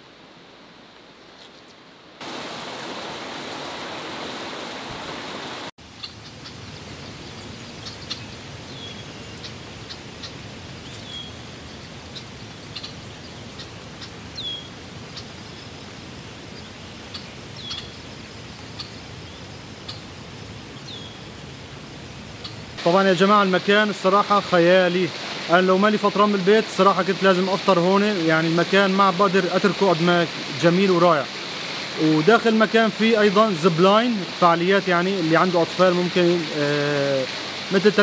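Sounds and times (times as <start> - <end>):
flowing river water: 0.0 - 38.0
bird chirping: 6.0 - 21.6.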